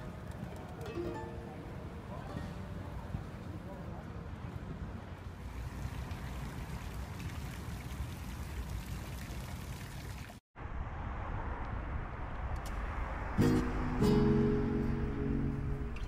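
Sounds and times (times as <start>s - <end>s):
dull outdoor rush: 0.0s - 16.0s
fountain water splashing: 5.4s - 10.4s.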